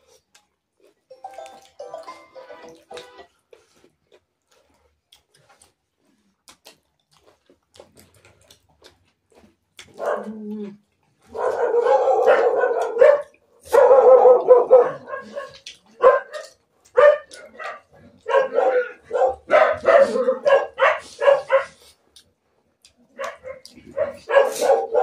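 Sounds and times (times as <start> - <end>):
dog barking: 9.9 - 10.4, 11.2 - 21.9, 23.1 - 25.0.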